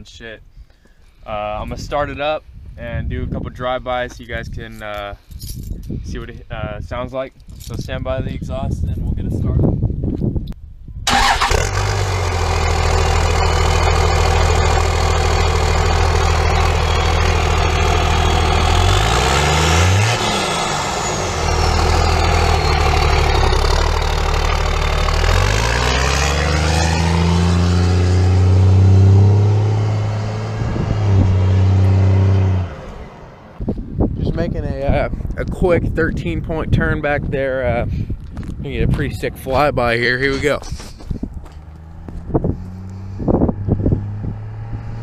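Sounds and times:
diesel engine idling and revving: 11.1s - 34.0s, 39.4s - 45.0s
turbo whistle: 16.4s - 19.0s.

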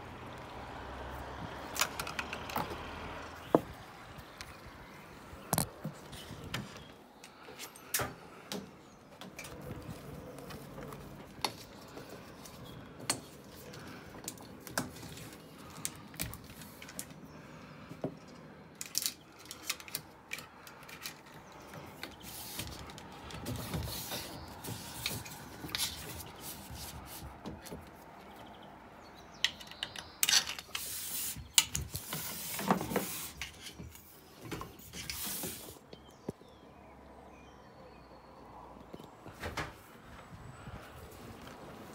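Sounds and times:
clicks and knocks of pole sections: 1.4s - 3.8s, 17.9s - 28.3s, 29.4s - 35.7s.

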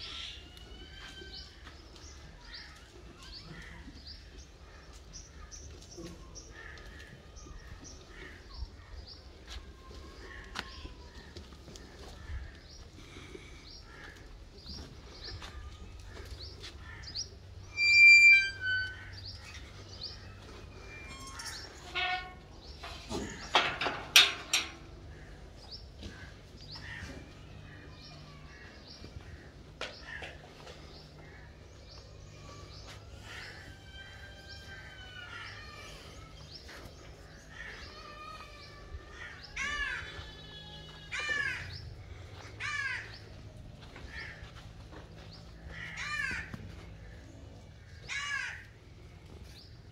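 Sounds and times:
crow cawing: 42.6s - 43.1s, 45.7s - 46.6s, 48.0s - 48.6s.

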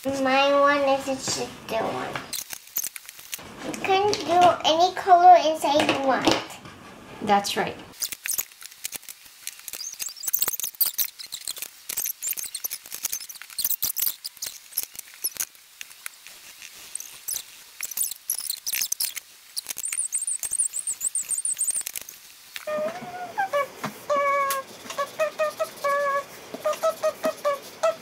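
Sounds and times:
marker tip squeaking: 8.0s - 8.5s, 9.6s - 15.5s, 16.9s - 28.0s
markers scribbling on paper: 9.8s - 15.5s, 16.3s - 22.2s, 24.1s - 28.0s.

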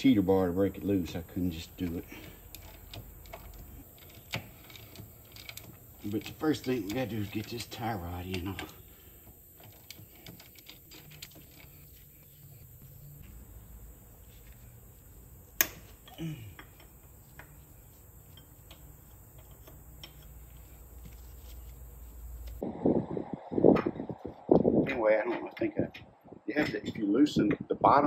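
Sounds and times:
steady high-pitched hiss: 0.0s - 28.0s
hand wrench clicking: 1.9s - 11.7s, 18.3s - 20.4s.

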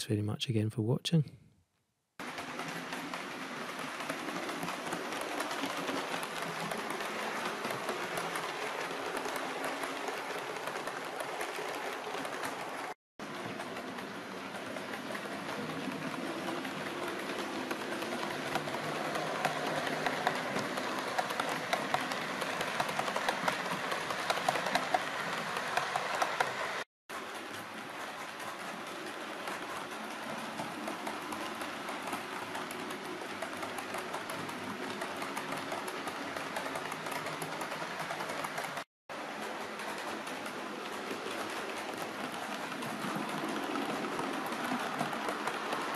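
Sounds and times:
wheels clicking over rail joints: 2.2s - 45.9s
model train motor whirring: 13.6s - 38.8s.

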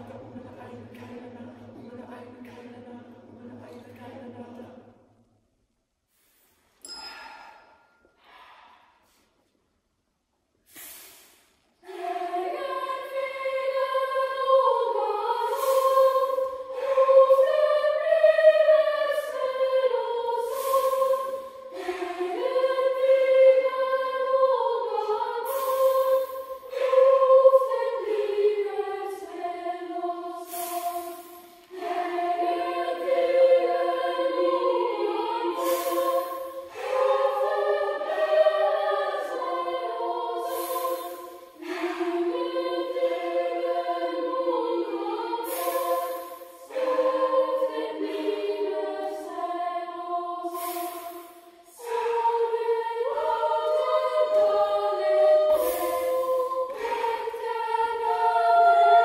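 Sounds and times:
boys' choir singing: 0.0s - 5.1s, 11.8s - 59.0s
short hiss: 6.1s - 7.8s, 10.6s - 11.8s, 25.5s - 26.7s, 30.4s - 31.8s, 35.6s - 36.9s, 40.4s - 42.0s, 45.4s - 46.8s, 50.5s - 51.9s, 55.5s - 57.2s.

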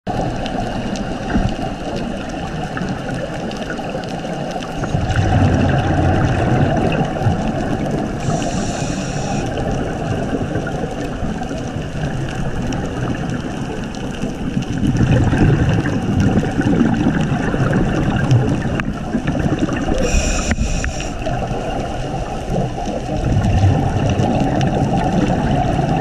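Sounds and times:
water gurgling and bubbling: 0.1s - 26.0s
high whine: 8.2s - 9.5s, 19.9s - 21.2s.

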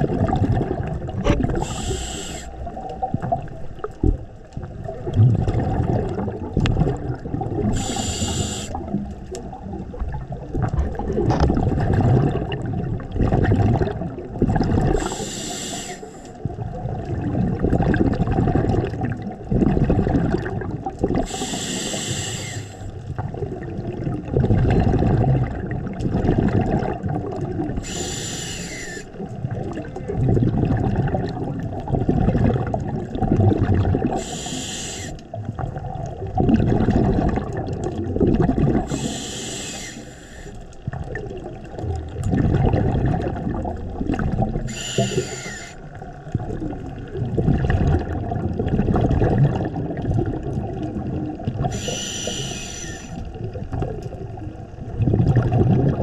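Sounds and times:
exhaled air bubbling: 0.0s - 56.0s
regulator inhale hiss: 1.6s - 2.6s, 7.7s - 8.8s, 15.0s - 16.4s, 21.2s - 22.9s, 27.8s - 29.2s, 34.2s - 35.2s, 38.9s - 40.6s, 44.7s - 45.8s, 51.7s - 53.2s.

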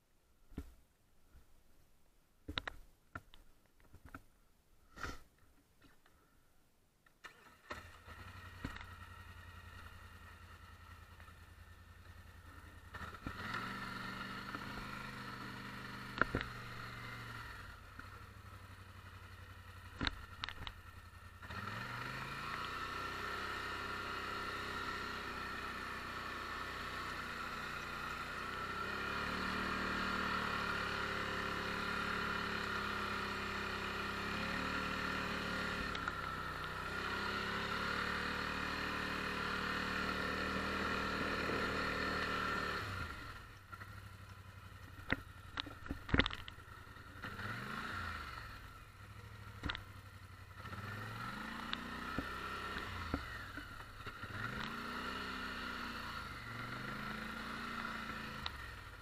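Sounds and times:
atv engine revving: 7.2s - 59.0s.

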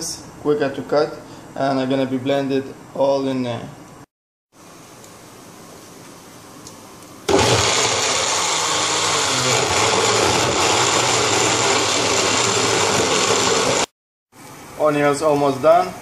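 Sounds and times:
blender running: 7.3s - 13.9s.

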